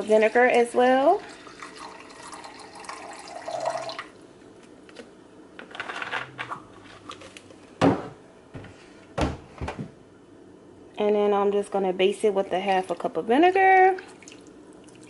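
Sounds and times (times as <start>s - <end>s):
liquid trickling: 1.2s - 4.2s, 12.7s - 15.0s.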